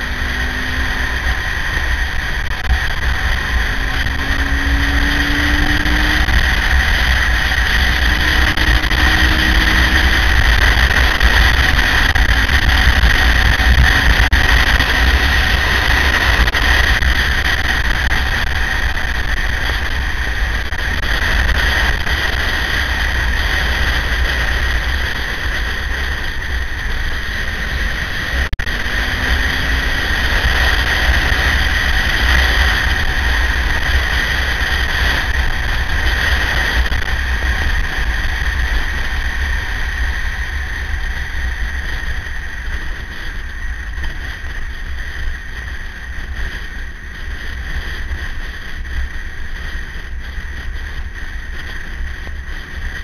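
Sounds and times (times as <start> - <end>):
motorcycle engine roar: 0.0 - 53.0
wind rush: 0.0 - 53.0.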